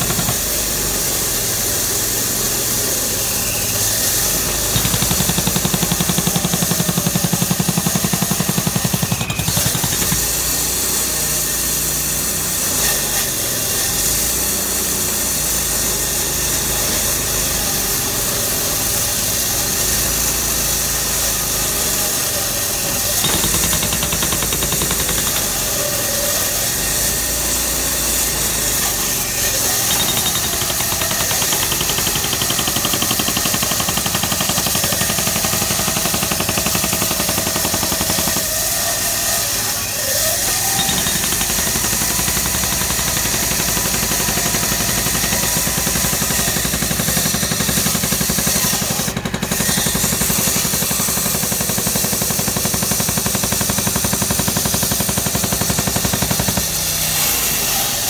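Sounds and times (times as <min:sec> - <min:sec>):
hydraulic hammer pounding concrete: 0:00.0 - 0:58.0.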